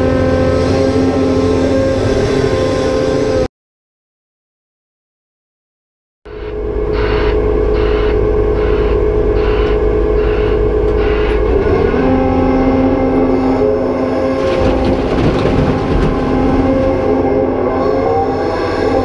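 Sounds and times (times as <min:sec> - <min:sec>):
excavator engine drone: 0:00.0 - 0:03.5, 0:06.3 - 0:19.0
clicks and knocks: 0:14.4 - 0:17.1.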